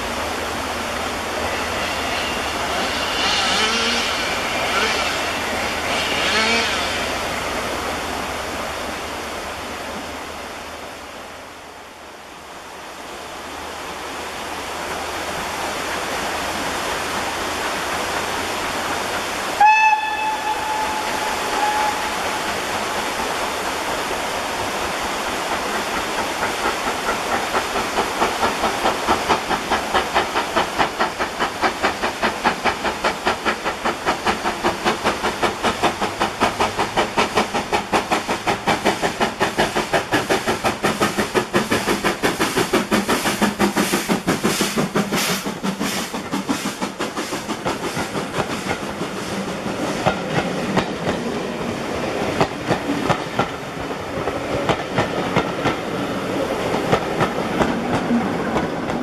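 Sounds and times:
steam locomotive working: 0.0 - 59.0
steam locomotive exhaust chuffs: 0.1 - 8.4, 14.8 - 51.4
steam whistle: 1.6 - 7.2, 19.6 - 22.6.

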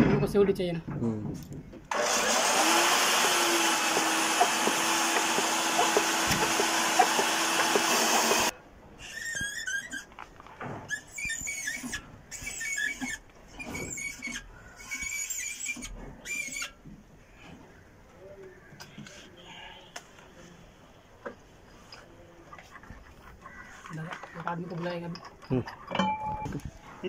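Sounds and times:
electric core drill running: 1.9 - 8.5
faint high squeaky chirps: 10.9 - 16.8.

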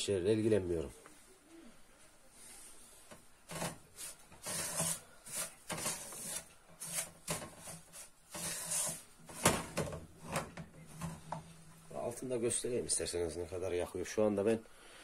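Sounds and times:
wooden spoon scraping frying pan: 3.5 - 11.6.

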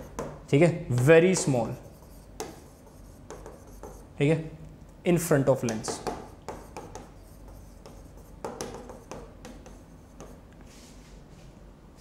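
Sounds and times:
pen scratching on board: 0.0 - 4.1, 5.7 - 10.4
pen tapping: 0.0 - 4.1, 5.6 - 10.4.

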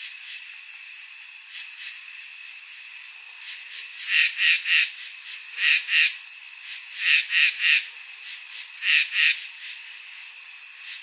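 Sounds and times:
high insect trill: 0.0 - 11.0
frog calling: 1.4 - 2.1, 3.4 - 10.0, 10.8 - 11.0.

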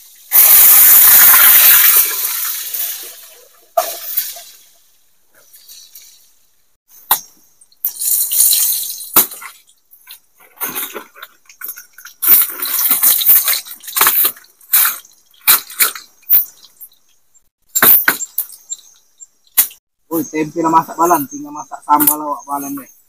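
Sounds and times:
food sizzling in hot oil: 0.0 - 5.0, 7.8 - 9.2.

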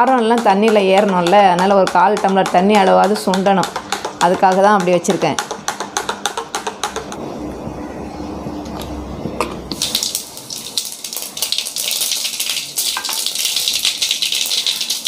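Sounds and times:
hot oil sizzling and crackling: 9.7 - 15.0.

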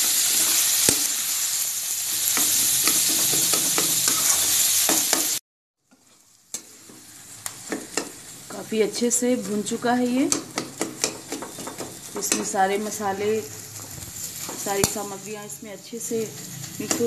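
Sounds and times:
food sizzling in hot oil: 0.0 - 17.0
metal spatula scraping pan: 2.3 - 5.2, 16.2 - 17.0.

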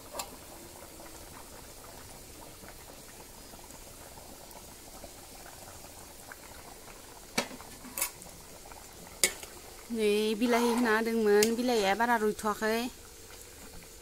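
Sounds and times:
curry bubbling in a wok: 0.0 - 14.0.

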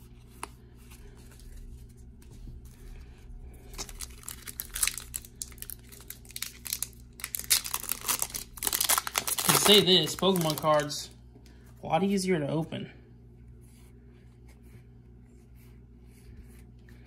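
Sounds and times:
foil wrapper crinkling and tearing: 3.7 - 11.0.

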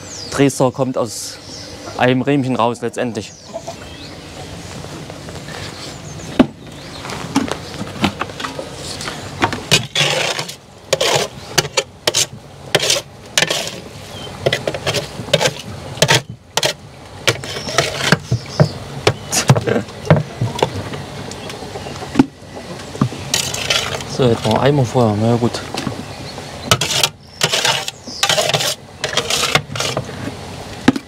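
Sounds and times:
hand scraping: 4.7 - 20.8, 23.0 - 24.8, 26.7 - 30.4.

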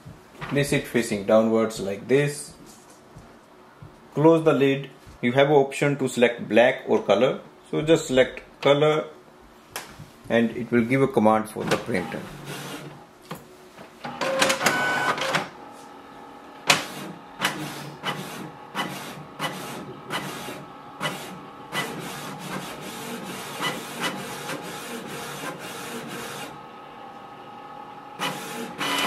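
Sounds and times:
printer mechanical whir: 11.6 - 13.1, 14.0 - 29.0
print head clicking: 16.6 - 26.5.

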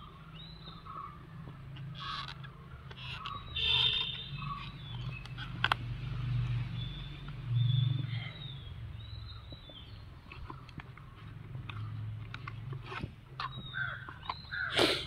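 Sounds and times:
faint ticks and scrapes: 1.7 - 5.8.

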